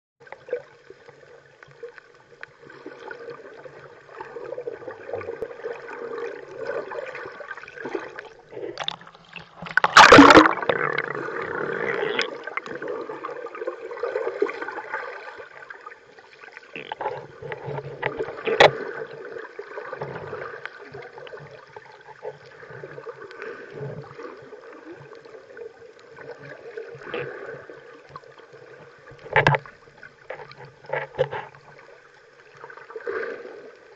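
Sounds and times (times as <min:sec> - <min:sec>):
muffled underwater gurgling: 0:03.1 - 0:25.5
rushing water swirl: 0:04.4 - 0:16.6.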